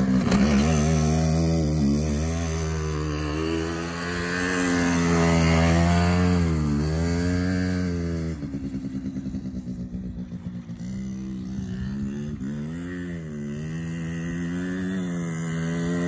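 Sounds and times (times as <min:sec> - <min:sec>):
quad engine revving: 0:00.0 - 0:16.0.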